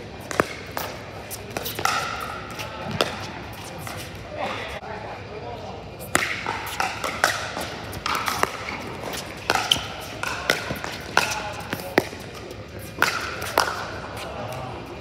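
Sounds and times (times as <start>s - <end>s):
paddles striking plastic ball: 6.1s - 12.2s.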